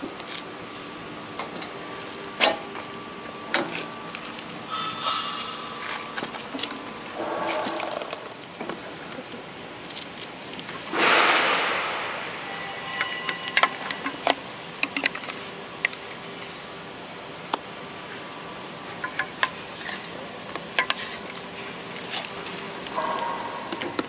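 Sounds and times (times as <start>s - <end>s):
clinks and knocks against metal: 4.7s - 8.3s, 12.4s - 15.2s.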